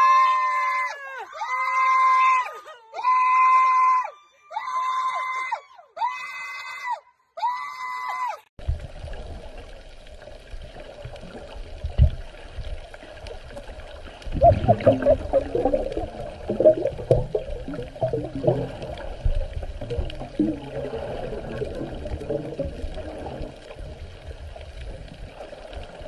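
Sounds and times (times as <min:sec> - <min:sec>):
person screaming: 0:00.0 - 0:08.4
underwater bubbling: 0:08.6 - 0:26.0.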